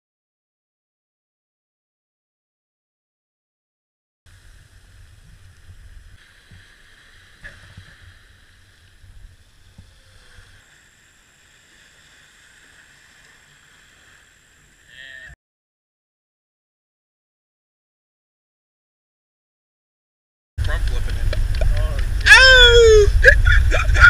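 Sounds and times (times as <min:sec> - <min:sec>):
faint high whine: 0:04.3 - 0:15.4
small waves washing on sand: 0:04.3 - 0:15.4, 0:20.6 - 0:24.0
wind rumbling on microphone: 0:04.3 - 0:15.4, 0:20.6 - 0:24.0.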